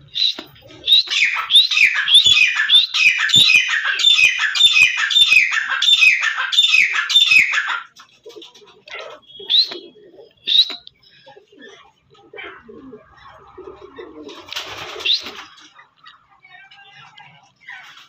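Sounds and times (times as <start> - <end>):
francolin calling: 0.0 - 7.9.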